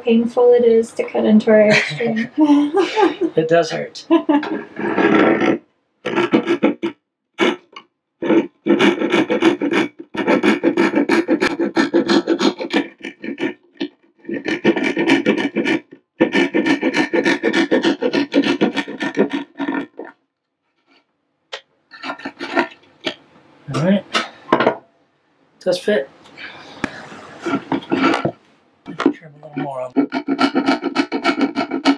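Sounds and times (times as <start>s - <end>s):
hand saw cutting wood: 4.4s - 20.1s, 21.9s - 23.2s, 27.1s - 31.9s.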